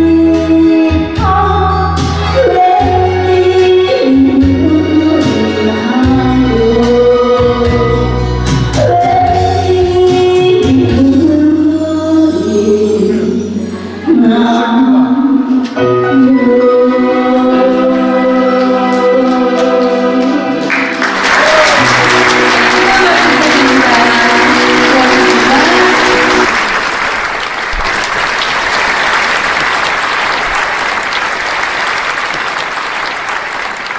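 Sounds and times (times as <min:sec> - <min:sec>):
backing music chord: 0:20.6 - 0:26.7
audience applauding: 0:20.6 - 0:33.9.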